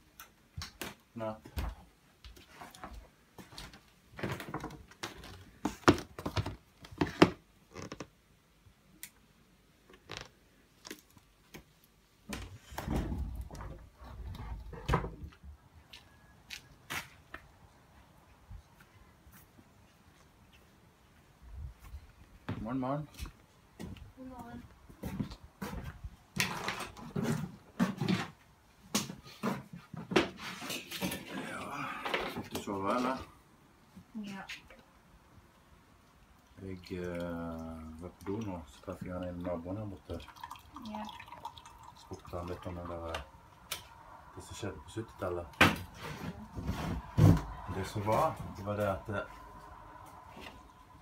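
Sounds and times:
noise: 0:00.0 - 0:39.6, 0:41.8 - 0:51.0
footsteps: 0:24.9 - 0:28.3, 0:45.6 - 0:51.0.

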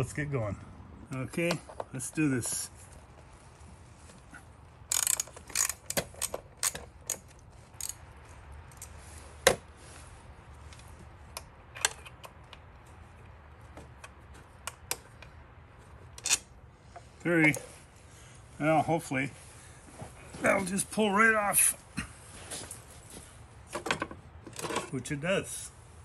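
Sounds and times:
socket ratchet clicking: 0:04.9 - 0:08.0.

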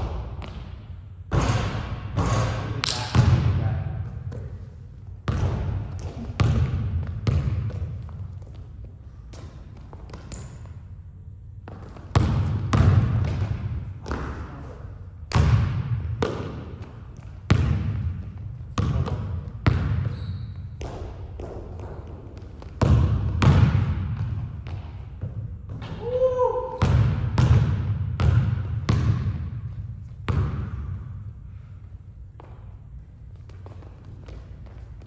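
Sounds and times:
basketball bouncing on hardwood floor: 0:05.2 - 0:08.7, 0:09.3 - 0:10.7, 0:11.6 - 0:26.2, 0:26.8 - 0:31.1, 0:33.4 - 0:35.0.

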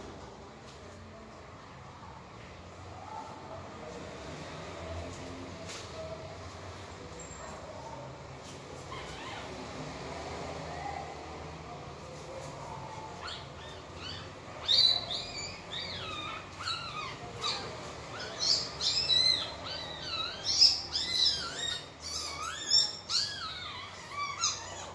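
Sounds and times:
puppies whimpering and squealing: 0:08.8 - 0:10.4, 0:12.4 - 0:24.9.

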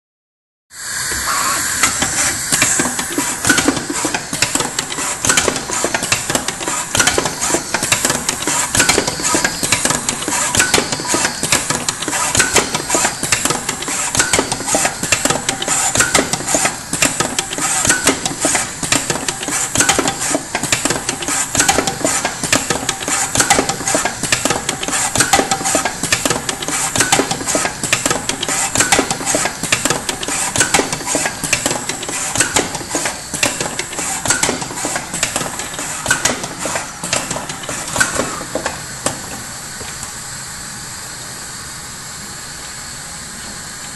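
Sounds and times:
machinery mechanical din: 0:01.0 - 0:39.5
rapid clicking and metallic clatter: 0:01.8 - 0:39.4.

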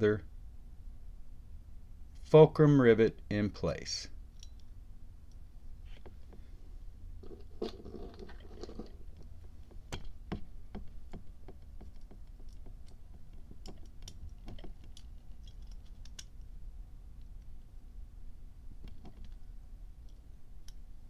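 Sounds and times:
small metal parts clicking: 0:04.3 - 0:04.7, 0:11.1 - 0:16.5.

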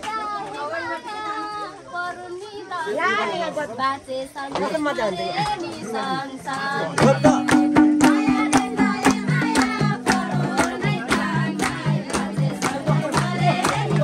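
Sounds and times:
voices singing: 0:00.0 - 0:14.0
band playing folk music: 0:07.0 - 0:14.0.

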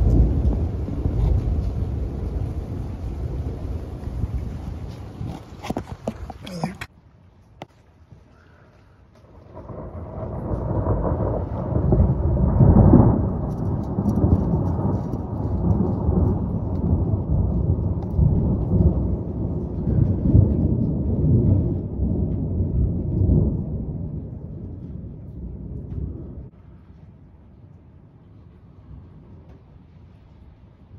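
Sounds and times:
rolling thunder rumble: 0:00.0 - 0:06.1, 0:09.2 - 0:27.2.

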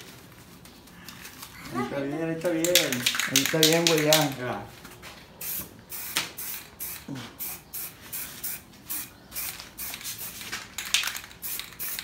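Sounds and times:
spray paint can hissing: 0:05.4 - 0:12.0.

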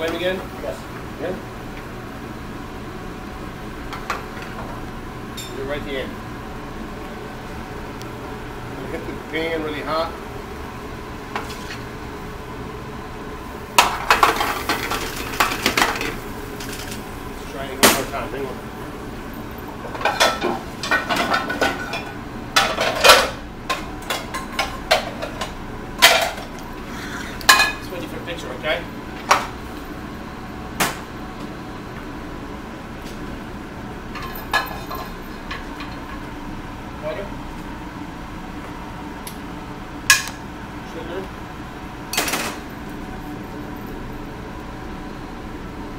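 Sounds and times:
kitchen background noise: 0:13.6 - 0:30.1, 0:34.0 - 0:36.4, 0:42.1 - 0:44.3
pan clattering on burner grate: 0:13.8 - 0:17.0, 0:19.9 - 0:26.5.

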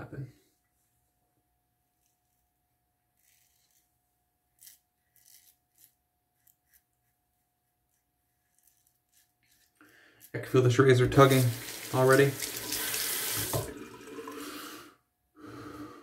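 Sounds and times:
razor scraping stubble: 0:03.0 - 0:13.6.

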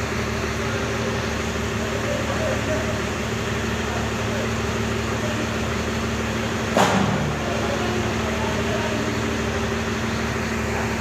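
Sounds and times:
engine humming: 0:00.0 - 0:11.0
sharp knock: 0:06.8 - 0:07.3.

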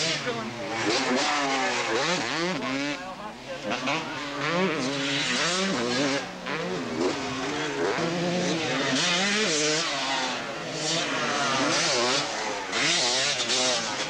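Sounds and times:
motocross bike engines revving: 0:00.0 - 0:14.0.

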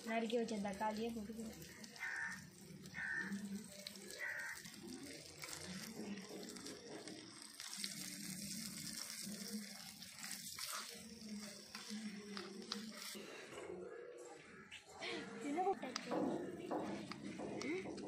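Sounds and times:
food sizzling in oil: 0:00.0 - 0:13.2.

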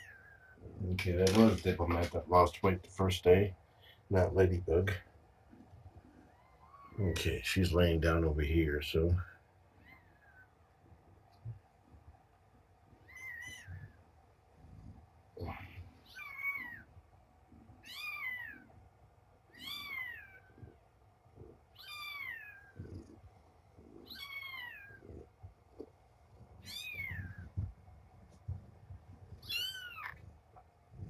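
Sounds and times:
kitten mewing: 0:26.6 - 0:27.7.

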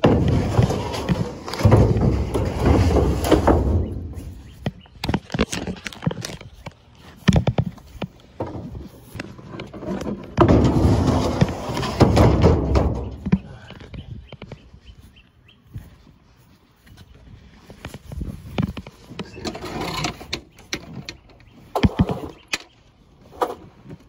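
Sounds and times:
wooden furniture rubbing and scraping: 0:00.0 - 0:13.7, 0:18.0 - 0:22.5.

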